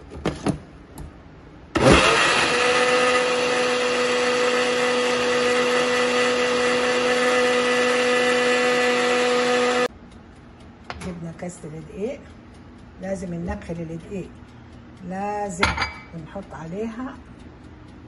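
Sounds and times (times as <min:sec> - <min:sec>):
blender clicks: 0:01.8 - 0:09.9
blender motor running: 0:01.8 - 0:09.9.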